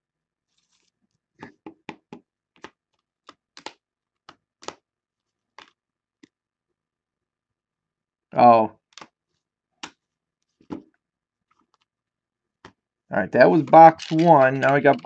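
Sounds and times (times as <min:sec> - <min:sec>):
plastic card holders clicking: 0:02.6 - 0:04.8, 0:13.5 - 0:15.0.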